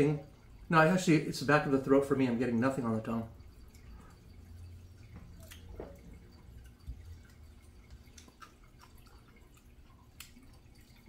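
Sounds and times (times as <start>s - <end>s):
small clicks and ticks: 3.4s - 11.0s.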